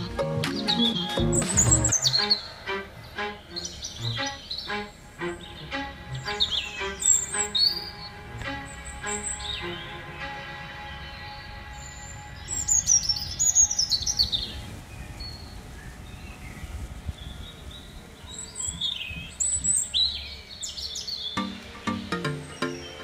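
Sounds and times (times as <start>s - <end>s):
bird chirps: 0.0s - 23.0s.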